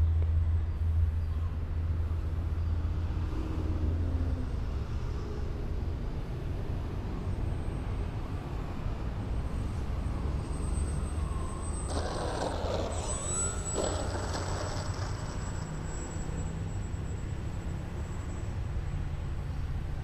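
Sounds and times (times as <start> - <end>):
model plane motors whining: 10.4 - 17.5.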